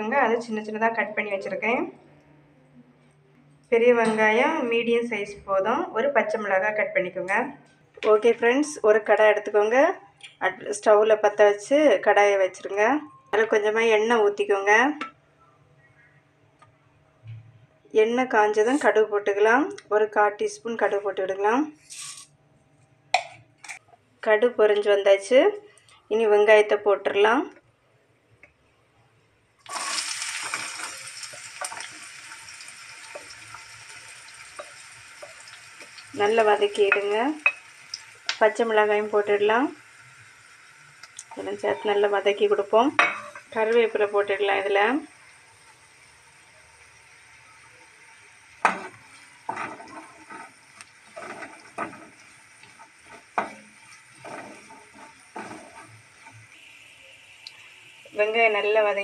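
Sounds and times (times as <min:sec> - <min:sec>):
onions sizzling in hot oil: 0:21.8 - 0:22.2, 0:29.6 - 0:59.0
small crackles and pops: 0:37.8 - 0:38.4, 0:41.0 - 0:41.4, 0:50.7 - 0:56.6
wooden spatula scraping pan: 0:48.6 - 0:56.5.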